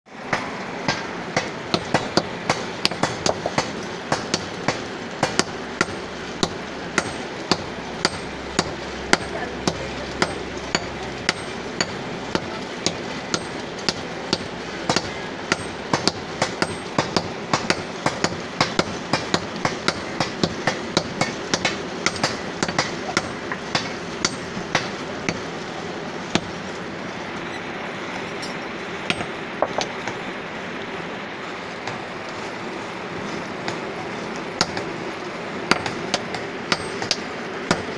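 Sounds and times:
sledgehammer striking iron on anvil: 0.3s - 25.5s, 26.3s - 26.6s, 28.4s - 30.2s, 34.6s - 34.9s, 35.7s - 37.9s.

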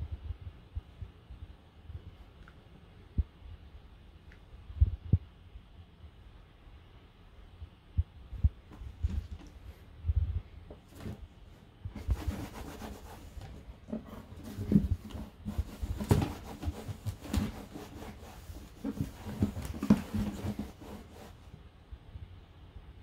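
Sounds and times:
cloth rubbing on wooden table: 12.0s - 21.4s.

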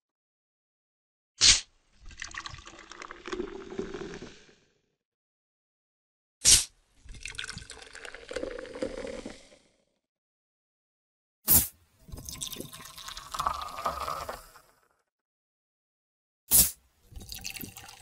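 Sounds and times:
fizzy pouring: 2.1s - 4.4s, 7.1s - 9.6s, 12.0s - 14.7s, 17.1s - 18.0s.

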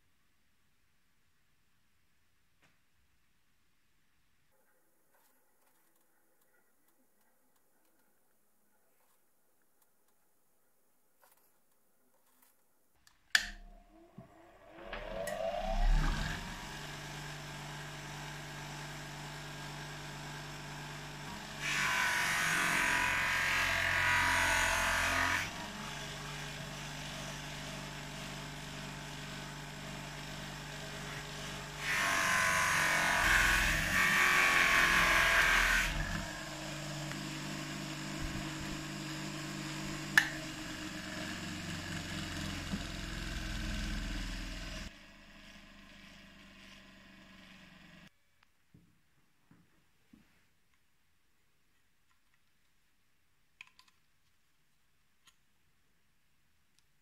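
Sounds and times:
bench grinder motor whine: 13.4s - 48.1s.

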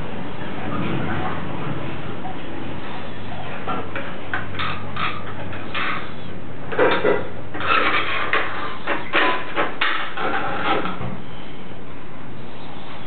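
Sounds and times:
plastic toys clattering on tiled floor: 6.7s - 11.0s.

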